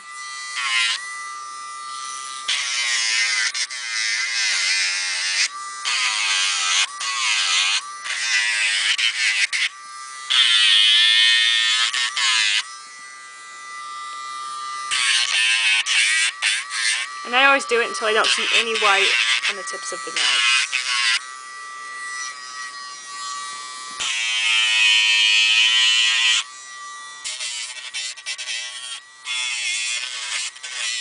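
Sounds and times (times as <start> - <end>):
rotary tool motor whine: 0.0 - 31.0
gritty hiss of nail sanding: 14.9 - 21.2.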